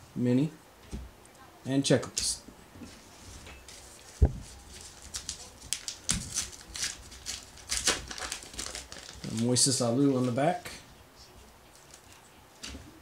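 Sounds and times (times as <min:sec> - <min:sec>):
wrapper tearing and crinkling: 0:04.7 - 0:09.6.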